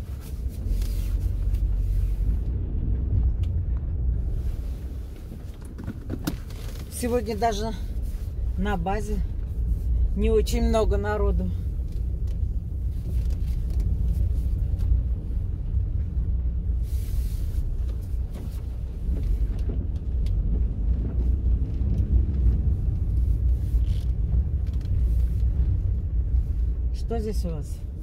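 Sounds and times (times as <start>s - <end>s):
car engine and tyres rumbling: 0.0s - 28.0s.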